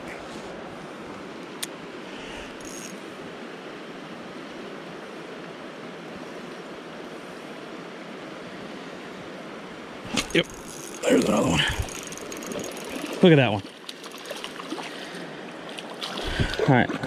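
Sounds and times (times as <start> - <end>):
water running over rocks: 10.0 - 17.0.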